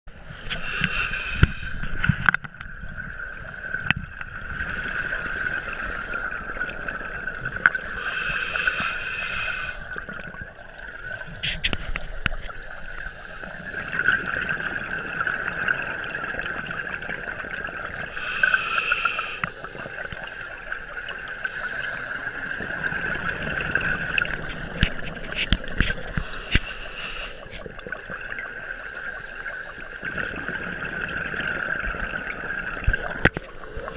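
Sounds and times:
exhaled bubbles rushing: 30.0s - 33.9s.

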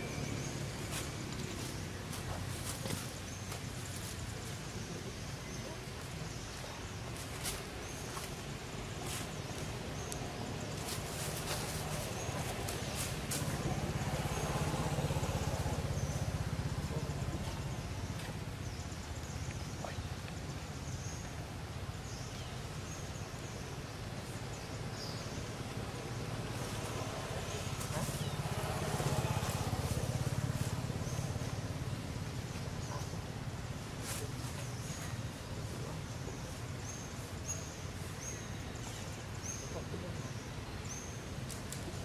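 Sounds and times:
motor scooters passing: 0.0s - 3.6s, 10.3s - 19.0s, 25.5s - 34.2s
outdoor background noise: 0.0s - 42.0s.

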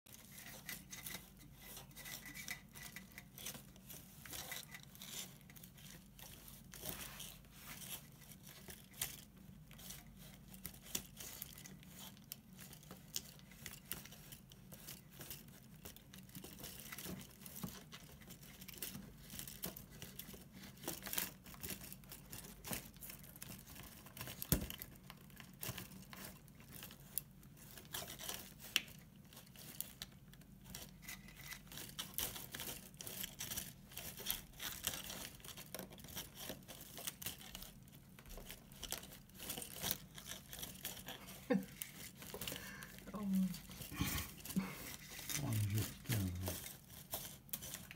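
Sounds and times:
rustling and crinkling of dolls: 0.0s - 47.9s.

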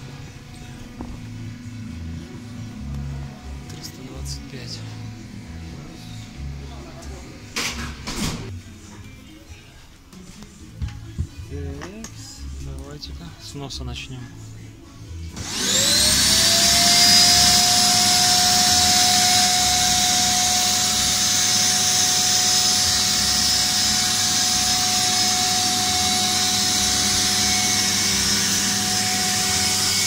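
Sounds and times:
electric air pump whining: 15.3s - 30.0s.

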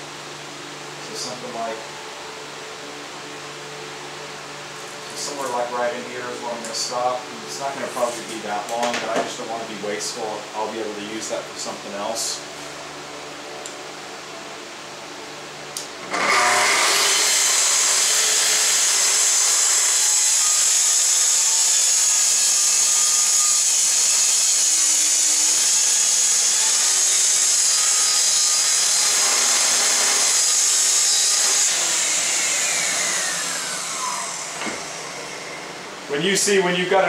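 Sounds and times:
circular saw cutting plywood: 16.1s - 35.8s.

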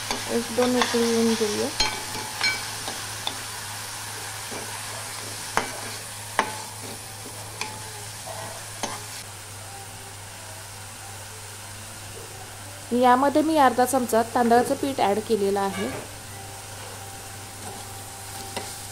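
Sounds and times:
metal spoon stirring and scraping: 0.0s - 3.4s, 4.5s - 9.1s
food sizzling in oil: 0.0s - 18.9s
spoon clinking against pan: 1.8s - 3.4s.

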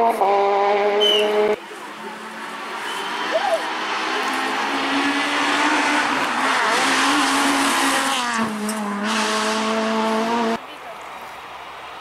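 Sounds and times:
rally car engine at high revs: 0.0s - 10.6s
tyre and road noise: 0.0s - 12.0s.

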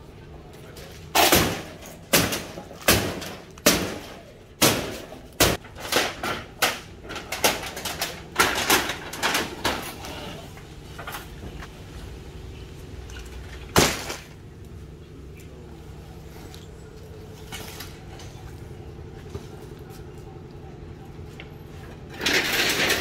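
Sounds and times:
wood and metal knocks and crashes: 1.0s - 10.2s, 13.5s - 14.4s, 21.9s - 23.0s.

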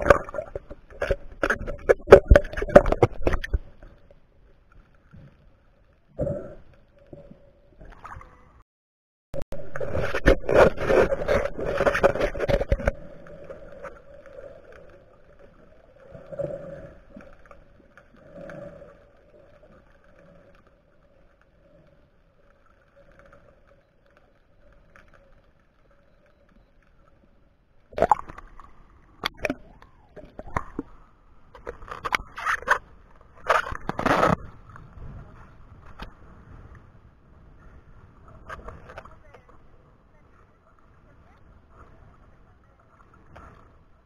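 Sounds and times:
water splashing: 0.0s - 5.4s, 9.5s - 27.1s, 27.8s - 36.0s
water rushing and bubbling: 0.0s - 8.6s, 9.4s - 26.4s, 27.0s - 36.7s.

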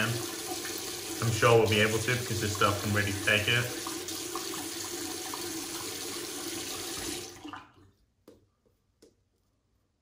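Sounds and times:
tap water running: 0.0s - 8.0s.

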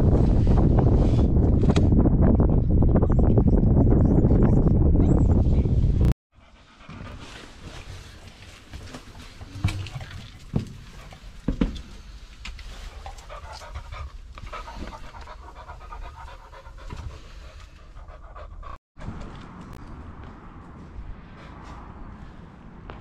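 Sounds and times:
dog panting: 6.4s - 8.0s, 12.8s - 18.8s.

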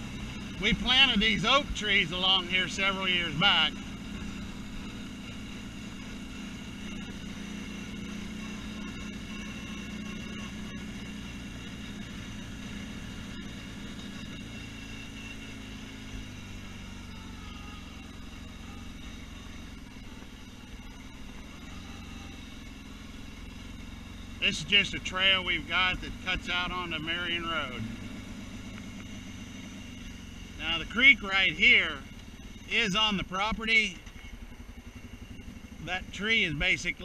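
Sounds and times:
quad bike engine running: 0.0s - 37.0s.

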